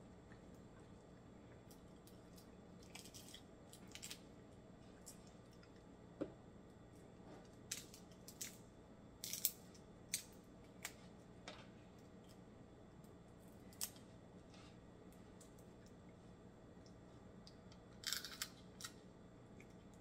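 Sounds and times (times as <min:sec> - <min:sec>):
crab shell cracking: 0:17.4 - 0:19.0.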